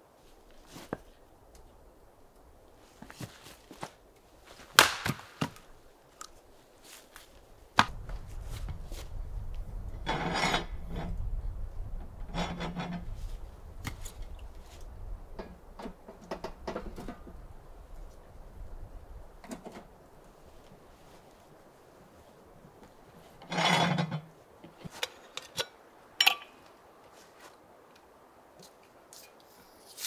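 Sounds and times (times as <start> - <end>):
low steady rumble: 7.9 - 20.1.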